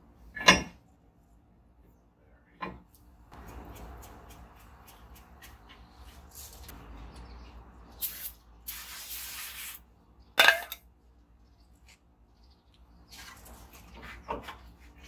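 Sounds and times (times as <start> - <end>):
aerosol can spraying: 8.0 - 9.8.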